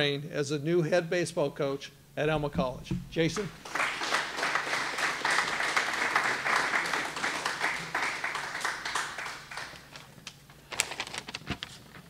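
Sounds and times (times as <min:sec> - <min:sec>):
audience applauding: 0:03.4 - 0:10.1.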